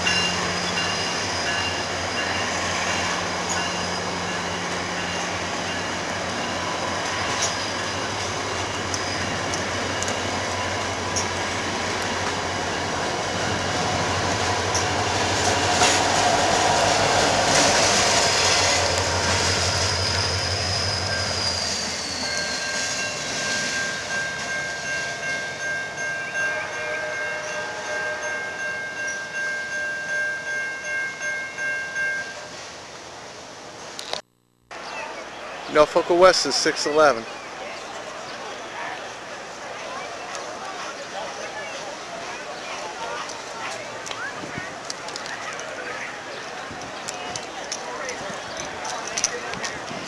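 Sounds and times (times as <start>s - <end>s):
passenger train rumbling past: 0.0s - 33.9s, 34.8s - 50.0s
diesel locomotive passing: 0.0s - 34.0s, 34.8s - 50.0s
high-pitched wheel squeal: 19.4s - 24.0s.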